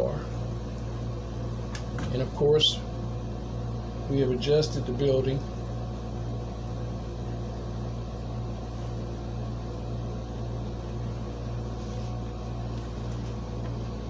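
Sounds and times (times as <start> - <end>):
air conditioner humming: 0.0 - 14.0.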